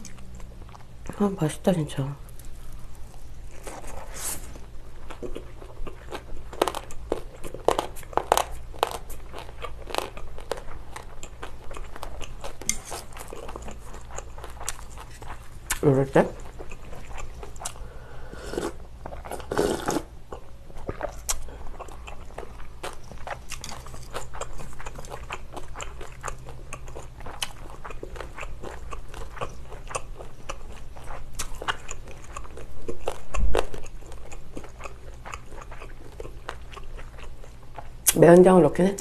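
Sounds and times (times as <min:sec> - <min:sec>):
chewing noodles with wet clicks: 0:05.0 - 0:15.8, 0:16.4 - 0:17.8, 0:20.3 - 0:38.2
sipping broth: 0:18.0 - 0:20.1
slurping noodles: 0:18.2 - 0:20.1.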